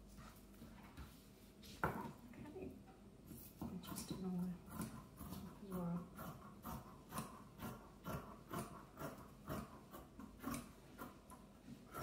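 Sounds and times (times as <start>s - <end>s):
shears cutting fabric: 3.5s - 12.0s.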